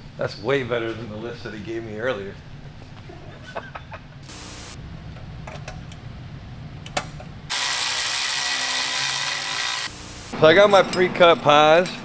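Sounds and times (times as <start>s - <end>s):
die grinder hissing with high whine: 4.3s - 4.8s, 7.5s - 10.3s.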